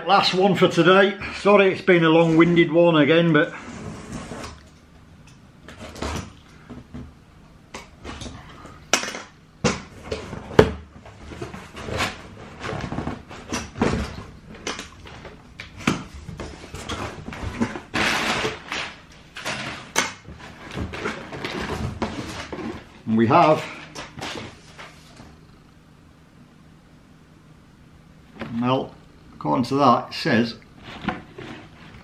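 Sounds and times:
cardboard rustling: 10.0s - 25.4s.

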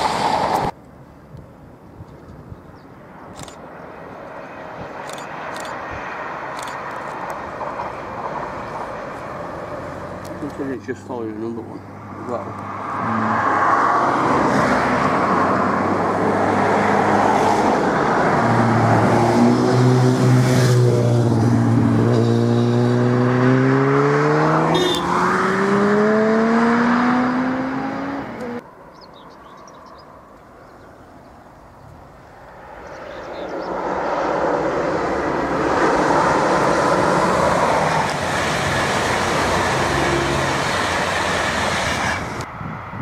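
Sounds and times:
approaching train rumble: 0.0s - 0.8s, 3.4s - 22.8s, 32.0s - 43.0s
train wheel and rail noise: 0.0s - 0.8s, 4.2s - 10.6s, 33.8s - 43.0s
train engine accelerating: 35.6s - 42.4s.

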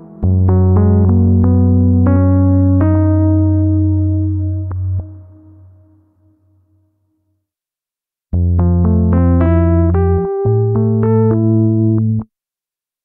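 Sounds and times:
soft synth keyboard chords: 0.0s - 6.4s, 8.4s - 12.3s.

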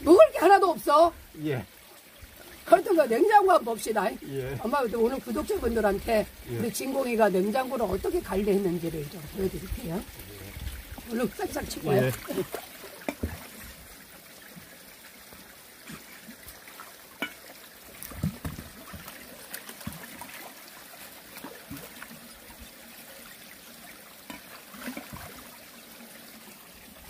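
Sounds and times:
stream trickling over rocks: 0.0s - 27.0s
small splashes and knocks in water: 10.7s - 13.8s, 15.8s - 20.7s, 21.3s - 22.2s, 24.2s - 25.5s.

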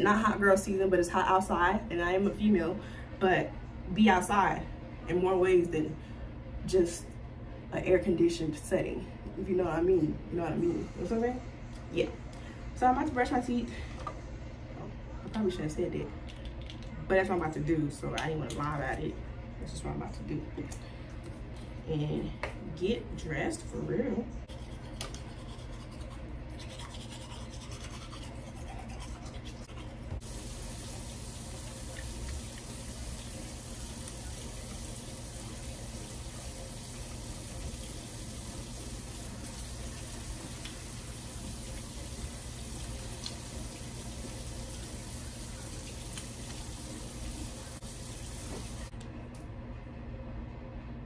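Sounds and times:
toothbrush scrubbing teeth: 24.5s - 32.8s
tap running water: 30.1s - 48.9s.

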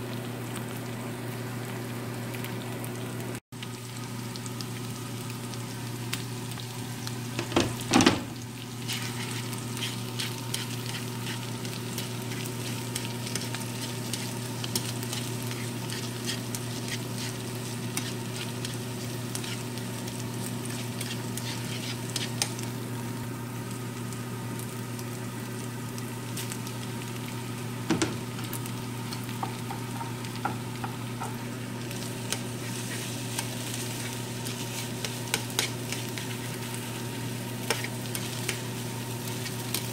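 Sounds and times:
food sizzling in frying pan: 0.0s - 39.9s
chopsticks scraping a pan: 8.8s - 12.8s, 13.4s - 19.7s, 20.7s - 22.5s, 32.3s - 36.6s, 37.6s - 38.7s.

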